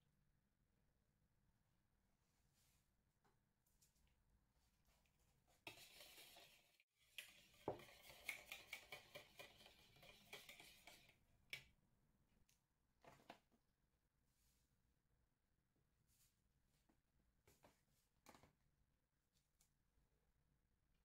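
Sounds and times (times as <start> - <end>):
whisk clicking against bowl: 5.7 - 11.2.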